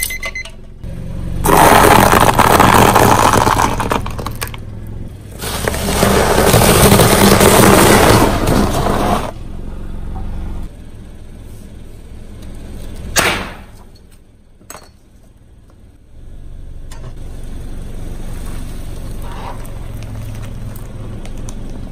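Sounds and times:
car engine running: 0:00.6 - 0:13.2, 0:15.2 - 0:21.9
tyre crunching coal briquettes: 0:01.4 - 0:09.4.

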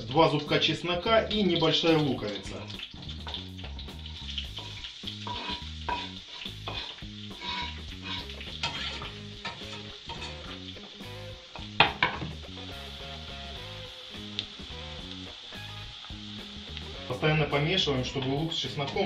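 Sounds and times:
onion sizzling in butter: 0:00.0 - 0:19.0
spatula scraping pan: 0:04.1 - 0:10.6.

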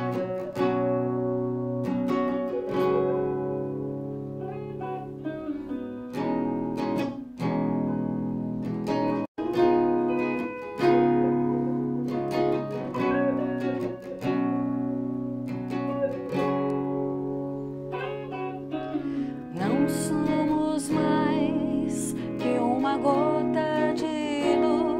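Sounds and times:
acoustic guitar: 0:00.0 - 0:24.9
electric guitar: 0:00.0 - 0:24.9
woman singing: 0:19.4 - 0:24.9.

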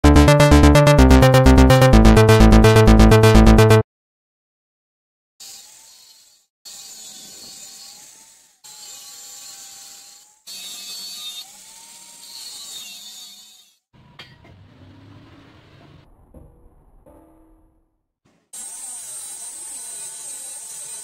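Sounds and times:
angle grinder cutting steel: 0:05.4 - 0:13.8, 0:18.6 - 0:21.0.

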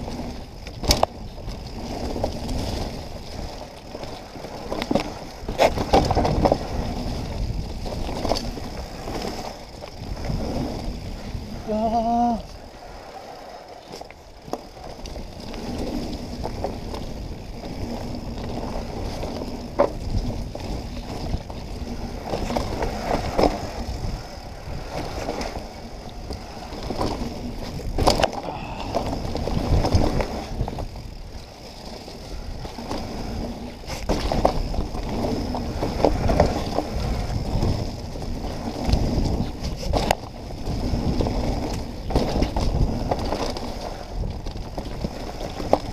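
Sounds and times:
bike knocks and rattles: 0:00.0 - 0:12.2, 0:13.8 - 0:45.9
bike tyres rumbling over dirt: 0:00.0 - 0:45.9.

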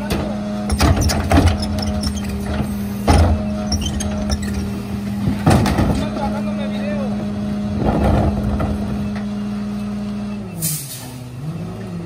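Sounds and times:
garbage truck humming: 0:00.0 - 0:12.0
heavy bangs of trash cart: 0:05.2 - 0:06.4.

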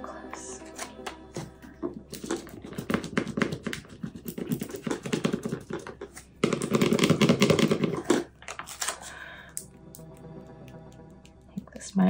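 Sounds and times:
plastic scraper scratching: 0:01.4 - 0:09.0
tape crackling as it peels: 0:08.4 - 0:09.1.

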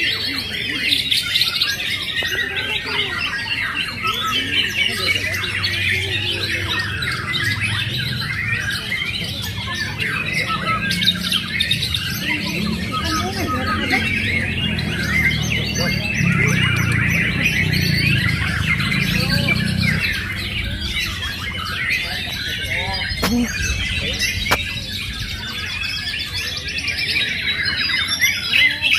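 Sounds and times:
birds whistling and chirping: 0:00.0 - 0:28.9
low background murmur: 0:00.0 - 0:28.9.

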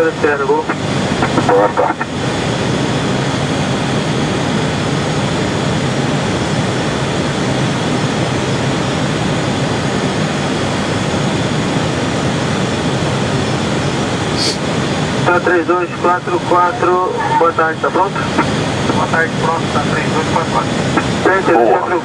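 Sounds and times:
jet engine noise: 0:00.0 - 0:22.0
airflow in jet cockpit: 0:13.0 - 0:22.0.

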